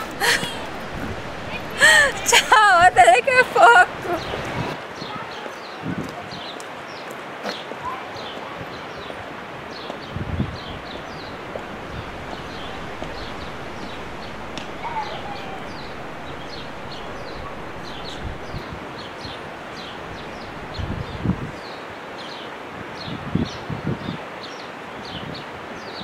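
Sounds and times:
wind rushing through leaves: 0.0 - 26.0
small birds chirping: 9.7 - 22.3.

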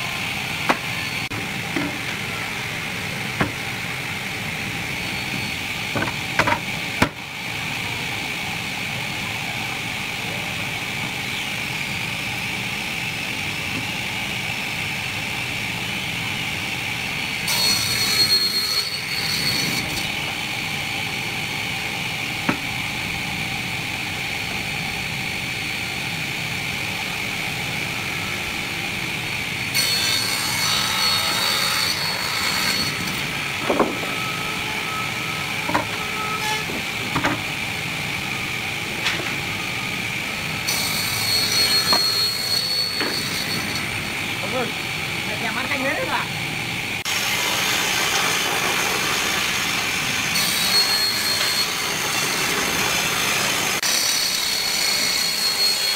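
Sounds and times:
circular saw whining: 10.9 - 46.2, 47.0 - 55.9
saw cutting through wood: 17.4 - 22.7, 26.6 - 37.6, 40.5 - 44.7, 47.0 - 55.9.

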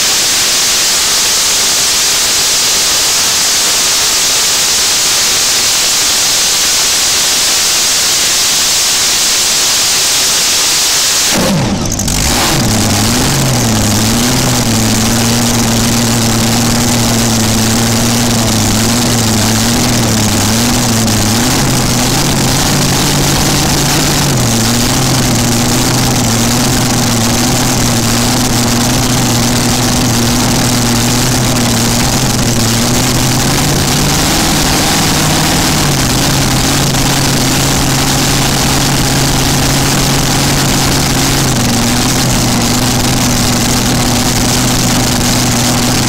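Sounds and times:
engine idling with open headers: 11.3 - 46.0.

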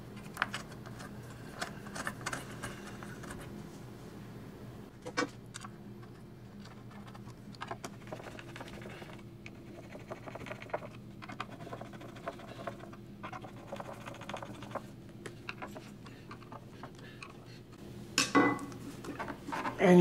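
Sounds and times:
screwdriver clicking and scratching: 6.6 - 14.8, 15.4 - 17.5.

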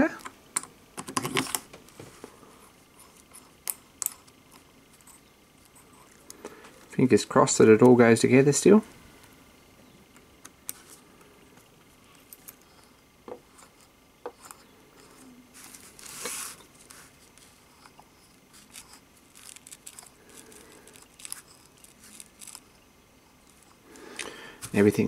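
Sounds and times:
rustle: 15.5 - 17.6
small metal parts clicking: 18.7 - 22.7.

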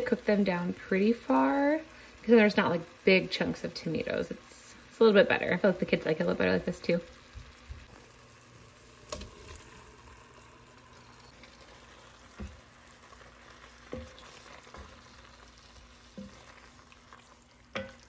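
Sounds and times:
faint sizzle in pot: 0.0 - 18.0
wooden spoon knocking pot: 17.7 - 18.0.

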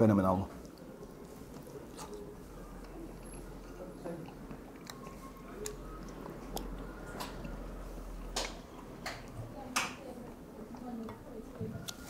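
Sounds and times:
person chewing: 0.5 - 9.4.

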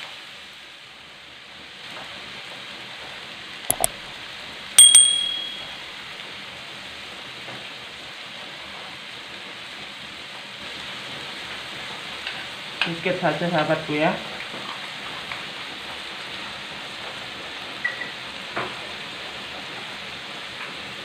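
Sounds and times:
food sizzling in a wok: 0.0 - 4.7, 5.9 - 21.0
quick clicks: 3.7 - 4.0
notification bell ding: 4.8 - 5.8.

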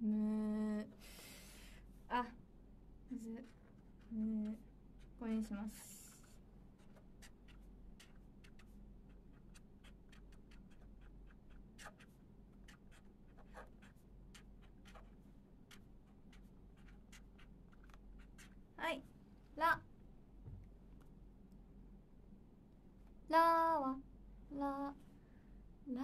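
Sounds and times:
low room hum: 0.0 - 26.0
pen scratching on paper: 3.4 - 18.6.

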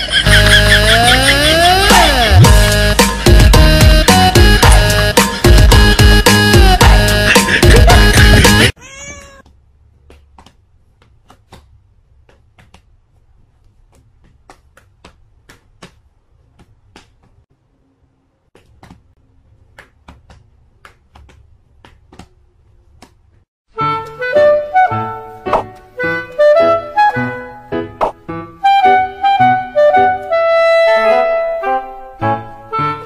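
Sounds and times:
loud background music: 0.4 - 8.7
cat meowing: 8.8 - 9.5.

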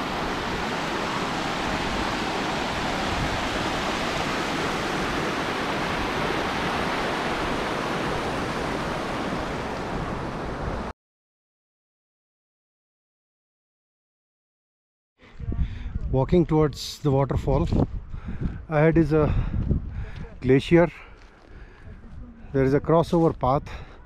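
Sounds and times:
stream rushing over rocks: 0.0 - 10.9.

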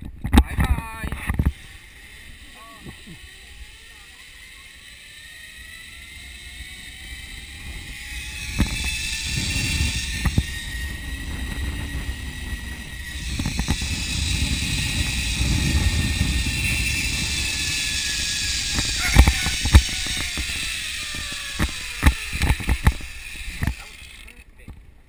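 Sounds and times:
zip line pulleys whining on cable: 0.4 - 24.8
wind buffeting microphone: 5.2 - 25.0
sharp clicks: 18.7 - 24.8.

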